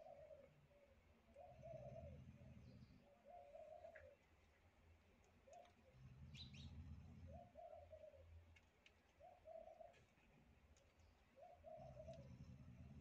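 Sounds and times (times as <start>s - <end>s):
pigeon cooing: 0.0s - 0.5s, 1.4s - 4.2s, 7.3s - 8.2s, 9.2s - 10.0s, 11.4s - 13.0s.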